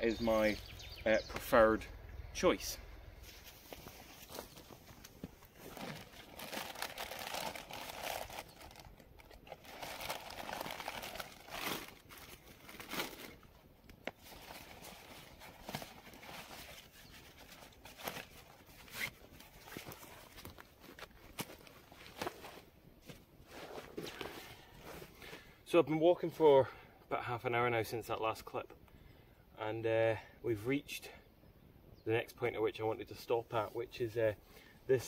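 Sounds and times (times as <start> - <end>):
backpack rustling and crinkling: 3.2 - 25.5.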